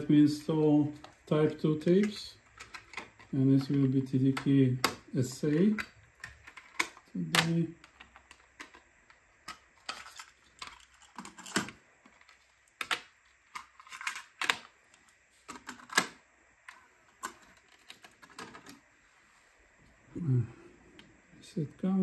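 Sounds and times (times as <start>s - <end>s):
plastic cassette clicks and clacks: 1.8s - 18.8s.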